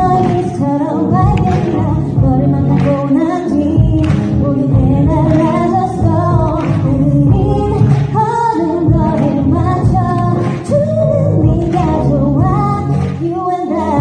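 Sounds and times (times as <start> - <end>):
pop song with singing: 0.0 - 14.0.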